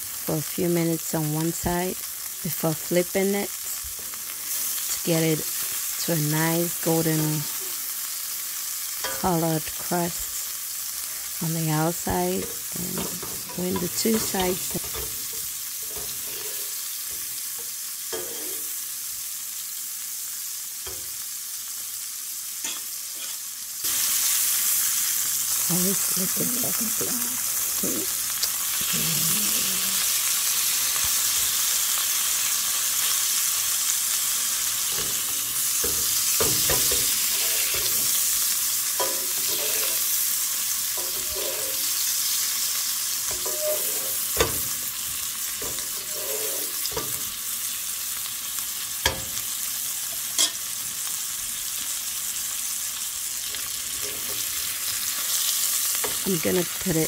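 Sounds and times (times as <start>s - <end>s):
steak sizzling in skillet: 0.0s - 57.0s
utensils knocking on pan: 12.3s - 17.3s, 34.9s - 38.2s, 39.0s - 40.0s, 41.0s - 41.8s, 43.3s - 44.8s.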